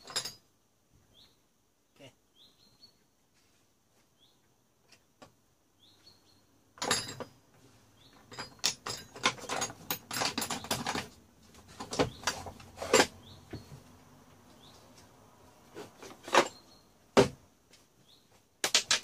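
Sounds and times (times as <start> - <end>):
metal tools clinking in wooden box: 0.0 - 0.5, 6.8 - 7.4, 8.1 - 13.7, 16.1 - 16.8.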